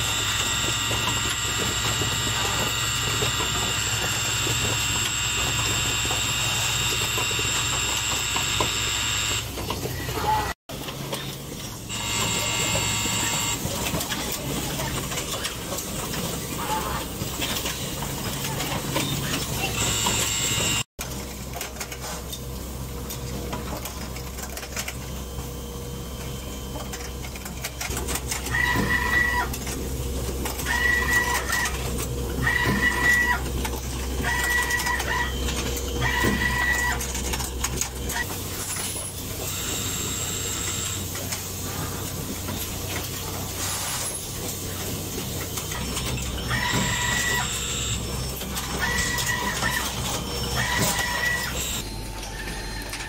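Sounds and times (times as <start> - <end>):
machine beep: 0.0 - 10.3, 11.9 - 14.0, 19.0 - 20.9, 30.6 - 41.2, 44.8 - 53.0
machinery humming: 0.0 - 20.9, 22.4 - 53.0.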